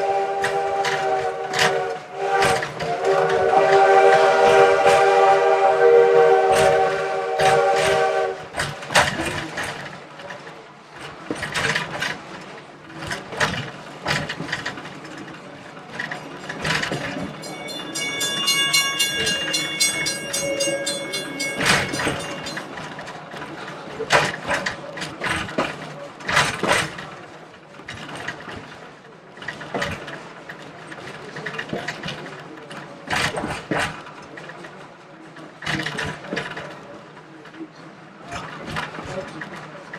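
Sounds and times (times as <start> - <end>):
train clanking and rattling: 0.0 - 39.9
railroad crossing bell ringing: 17.2 - 22.8.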